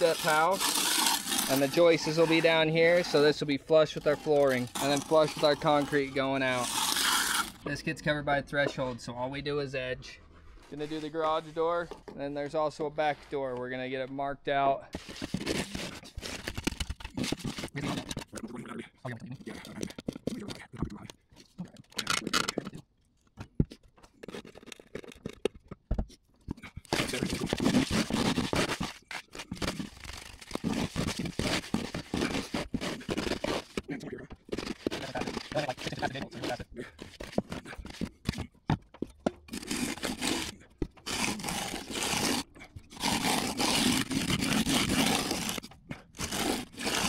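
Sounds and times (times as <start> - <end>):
pliers scraping nails from concrete: 0.0 - 3.3, 4.6 - 7.6
edger scraping wet concrete: 0.0 - 8.0, 10.6 - 13.6, 14.9 - 16.4, 26.9 - 38.5, 39.4 - 47.0.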